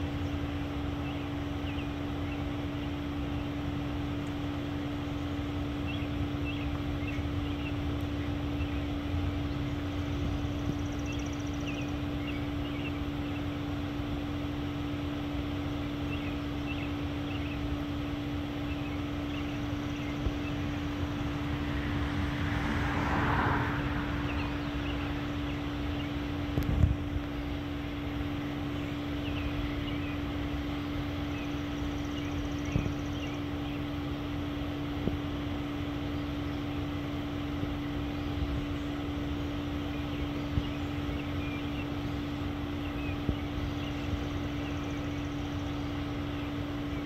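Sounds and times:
small birds chirping: 0:00.0 - 0:22.2, 0:23.8 - 0:47.0
steady low hum: 0:00.0 - 0:47.0
wind rumble: 0:20.2 - 0:25.8
rushing noise: 0:21.1 - 0:25.3.

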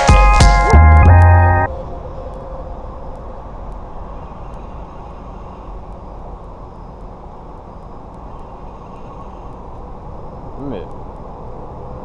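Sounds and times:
low outdoor rumble: 0:00.7 - 0:12.0
faint light ticks: 0:03.1 - 0:09.9, 0:10.8 - 0:11.3.

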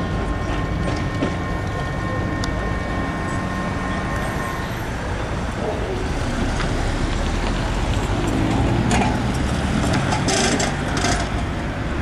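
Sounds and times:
street traffic rumble: 0:00.0 - 0:12.0
tram high-pitched whine: 0:00.0 - 0:12.0
car passing close: 0:04.8 - 0:12.0.

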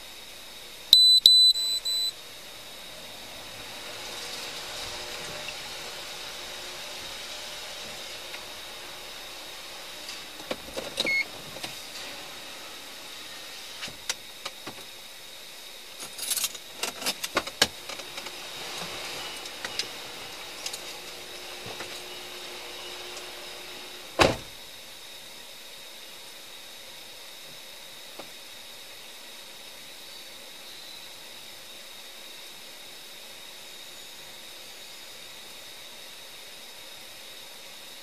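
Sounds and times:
faint high whine: 0:00.0 - 0:11.4, 0:28.9 - 0:37.9
short electronic beep: 0:01.0 - 0:02.1.

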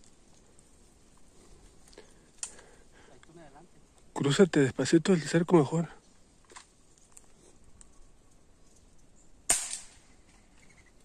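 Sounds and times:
gunshot: 0:09.5 - 0:10.0.

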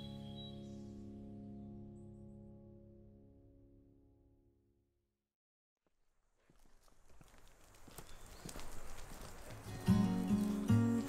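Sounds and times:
gentle guitar chord music: 0:00.0 - 0:04.9, 0:09.8 - 0:11.0.

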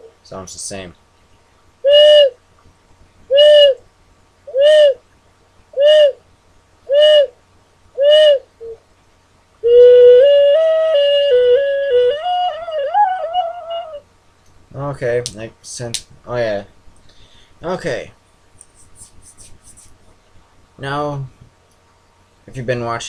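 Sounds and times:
ocarina notes: 0:01.8 - 0:02.4, 0:03.3 - 0:03.8, 0:04.5 - 0:05.0, 0:05.8 - 0:06.2, 0:06.9 - 0:07.3, 0:08.0 - 0:08.8, 0:09.6 - 0:14.0.

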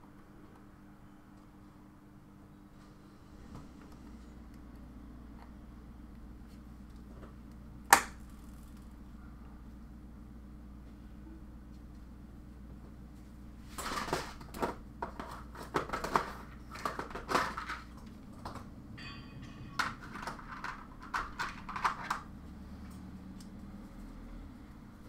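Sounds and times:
low steady hum: 0:00.0 - 0:25.0
small hard objects clattering: 0:13.8 - 0:18.7, 0:19.5 - 0:22.3.

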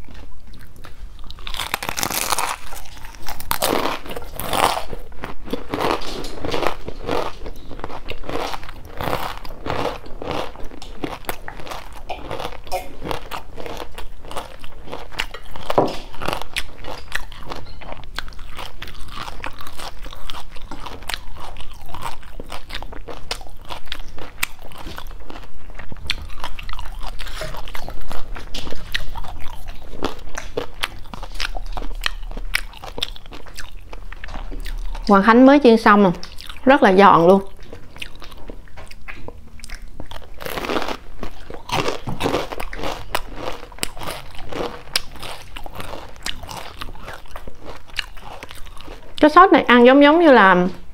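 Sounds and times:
quiet chewing: 0:00.0 - 0:35.2, 0:36.1 - 0:49.3
crunching fried food: 0:00.0 - 0:49.9.

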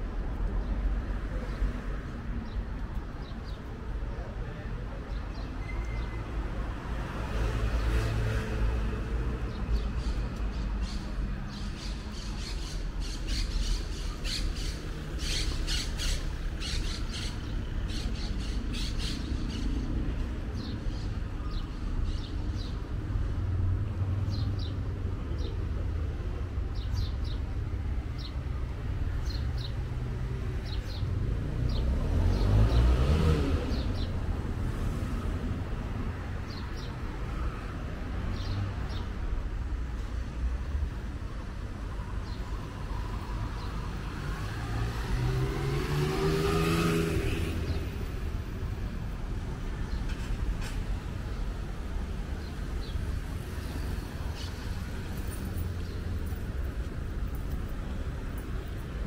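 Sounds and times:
street traffic rumble: 0:00.0 - 0:59.0
vehicle passing close: 0:43.9 - 0:48.4.

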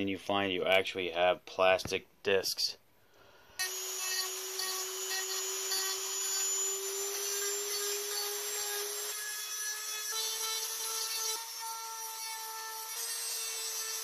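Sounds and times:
rotary tool sanding whine: 0:03.6 - 0:14.0.

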